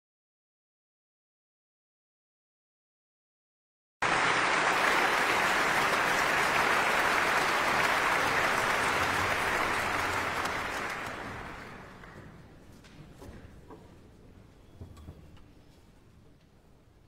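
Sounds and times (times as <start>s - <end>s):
audience applauding: 4.0s - 12.3s.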